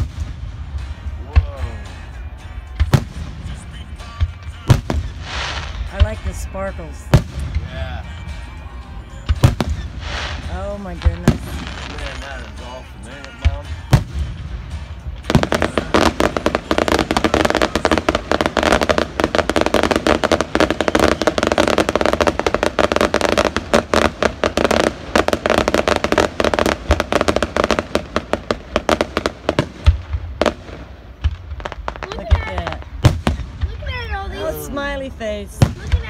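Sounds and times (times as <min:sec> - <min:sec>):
fireworks crackling pops: 0:00.0 - 0:01.7, 0:02.8 - 0:06.5, 0:09.2 - 0:34.9, 0:35.5 - 0:36.0
firework shells booming: 0:02.8 - 0:06.4, 0:13.3 - 0:33.8.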